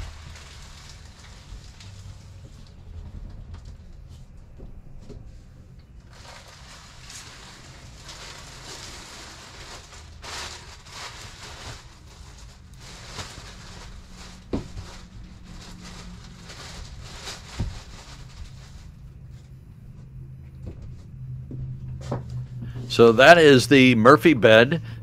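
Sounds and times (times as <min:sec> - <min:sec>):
plastic wrapping rustling: 0:00.0 - 0:04.4, 0:05.8 - 0:20.1.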